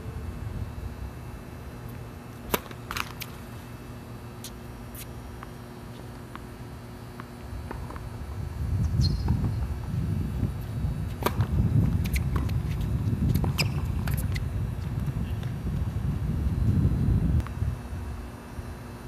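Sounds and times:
tennis racket striking ball: 0:02.5 - 0:03.3
wind buffeting microphone: 0:08.1 - 0:18.2.

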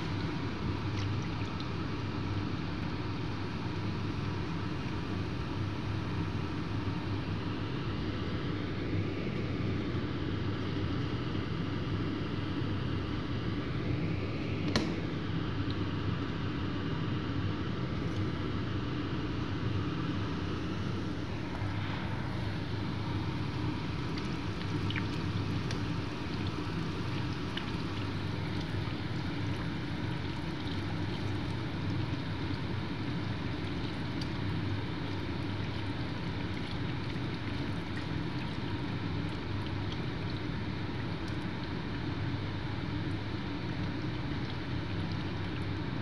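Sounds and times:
low steady hum: 0:00.0 - 0:46.0.

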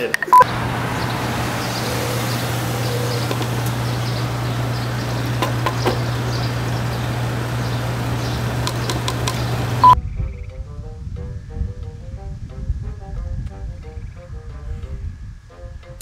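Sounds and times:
outdoor background noise: 0:00.0 - 0:10.6
low hum: 0:00.4 - 0:10.4
light clicks: 0:08.6 - 0:09.5.

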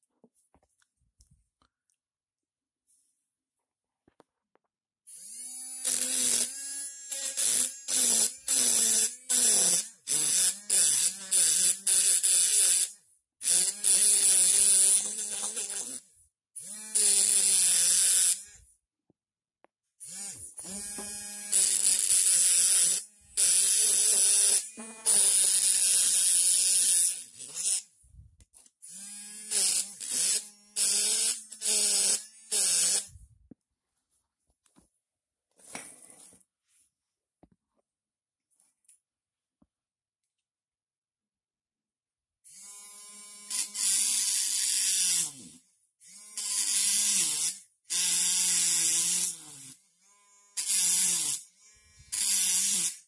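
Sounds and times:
electric engraving pen buzzing: 0:05.1 - 0:16.0, 0:16.6 - 0:18.6, 0:20.0 - 0:27.9, 0:28.9 - 0:33.1, 0:42.5 - 0:53.0
pen tip grinding into stone: 0:05.8 - 0:12.8, 0:20.6 - 0:27.9.

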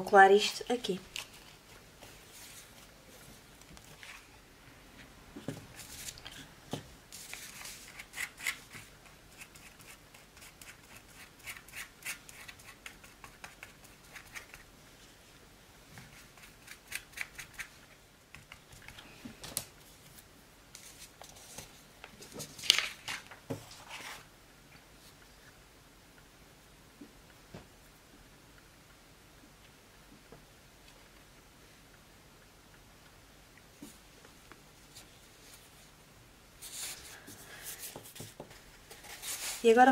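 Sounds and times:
brush spreading glue on paper: 0:07.1 - 0:15.1, 0:36.6 - 0:39.8
paper handling: 0:20.8 - 0:24.2.

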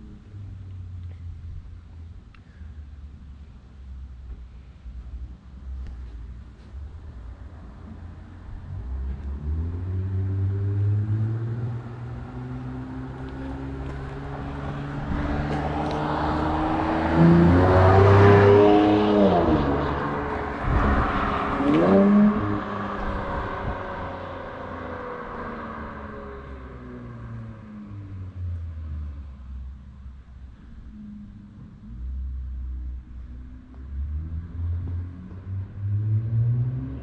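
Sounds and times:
car exhaust accelerating past: 0:08.2 - 0:29.8.

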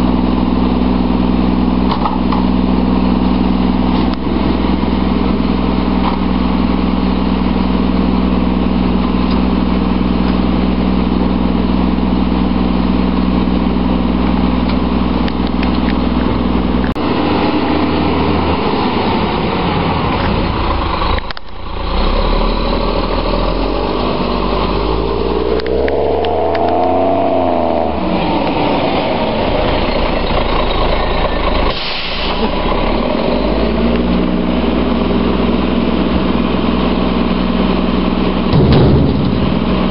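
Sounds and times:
garbage truck diesel engine idling: 0:00.0 - 0:25.5, 0:28.1 - 0:39.9
burst of hiss: 0:31.7 - 0:32.5.

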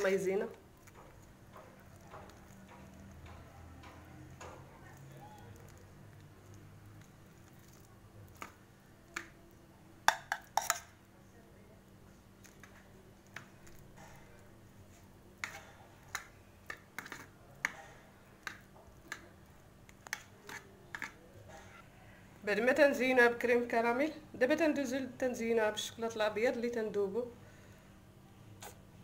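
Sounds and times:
metal spoon tapping pan: 0:10.1 - 0:10.9.

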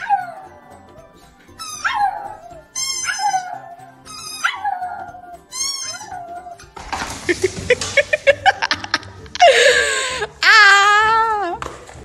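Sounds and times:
dog howling: 0:00.0 - 0:06.8
background music: 0:00.0 - 0:12.0.

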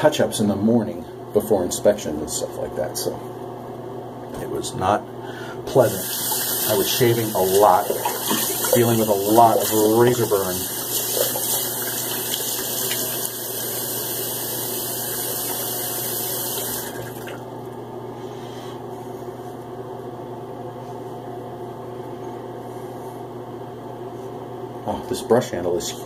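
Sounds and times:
tap water running into sink: 0:06.0 - 0:17.4.

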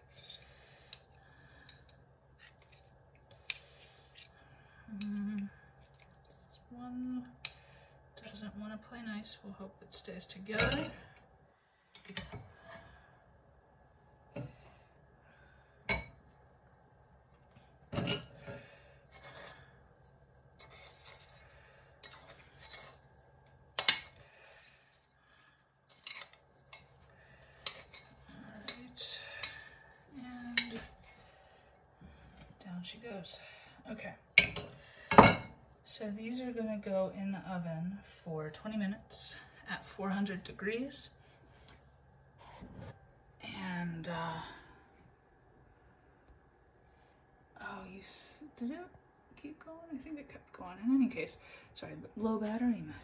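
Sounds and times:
spoons scraping glass bowl: 0:19.1 - 0:19.7, 0:20.6 - 0:23.1, 0:25.9 - 0:29.7.

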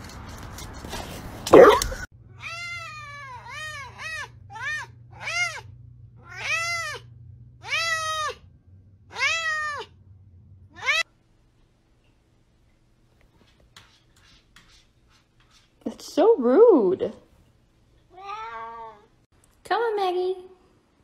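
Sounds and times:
cat meowing: 0:02.4 - 0:08.4, 0:09.1 - 0:09.9, 0:18.1 - 0:19.1.

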